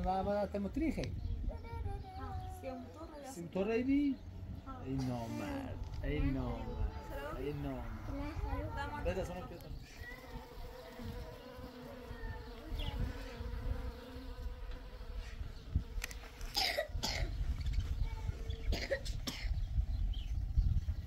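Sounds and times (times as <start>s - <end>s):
bees buzzing: 2.2s - 16.6s
person coughing: 16.5s - 17.4s, 18.7s - 19.6s.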